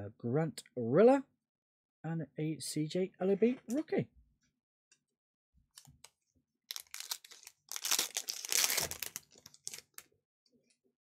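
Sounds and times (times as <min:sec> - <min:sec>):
foil wrapper crinkling and tearing: 0:06.7 - 0:10.1.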